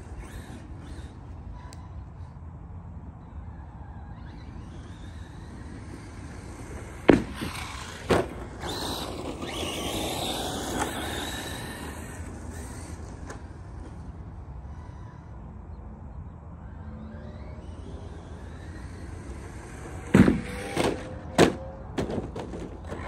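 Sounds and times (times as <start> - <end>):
rc truck motor whining: 0.0 - 23.0
tyres rolling over ground: 4.1 - 14.4, 18.2 - 23.0
truck landing thumps: 7.0 - 8.4, 20.0 - 23.0.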